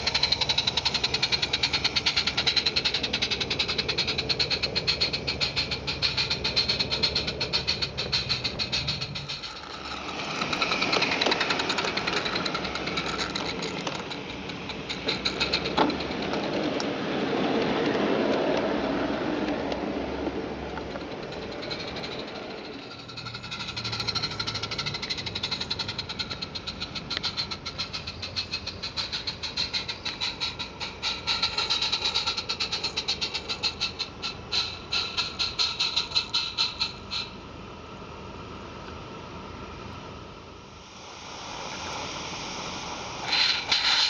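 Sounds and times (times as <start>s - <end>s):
quick even ticking: 0.0s - 16.9s, 20.8s - 37.4s
model train wheels rattling on rails: 0.0s - 37.4s, 43.2s - 44.0s.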